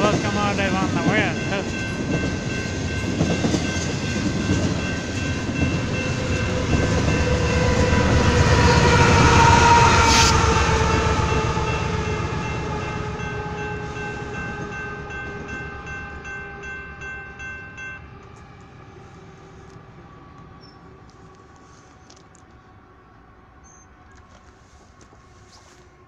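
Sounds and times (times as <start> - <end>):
level crossing bell: 0.0 - 7.7
freight train wheels clattering: 0.0 - 11.2
diesel locomotive passing: 0.0 - 26.0.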